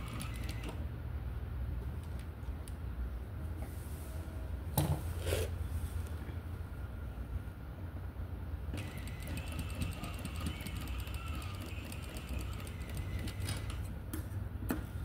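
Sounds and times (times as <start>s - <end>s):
sewing machine stitching: 0.0s - 0.8s, 8.8s - 13.9s.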